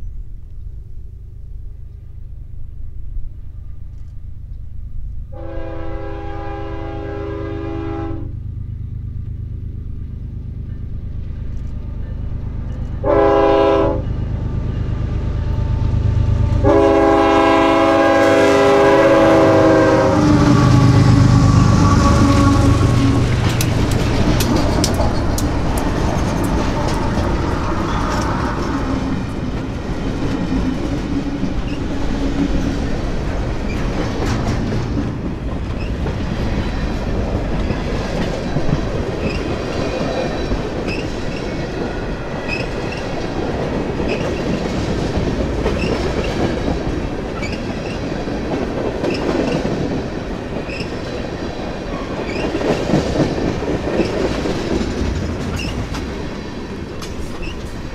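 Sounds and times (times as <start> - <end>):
freight train rumbling: 0.0 - 57.9
high wheel squeaks: 21.8 - 29.3, 50.7 - 51.0
wheels clicking over rail joints: 22.6 - 57.9.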